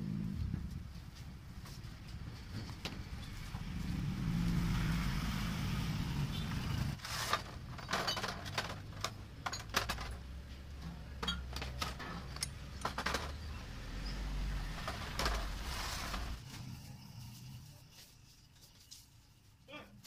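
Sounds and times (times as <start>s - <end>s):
glass bottles clinking: 7.6s - 13.6s.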